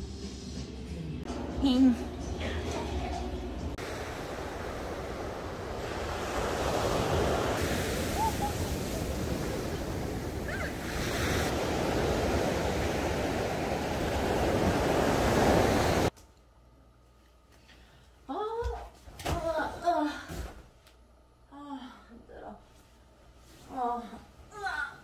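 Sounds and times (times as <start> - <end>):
sea waves breaking on beach: 3.8 - 16.1.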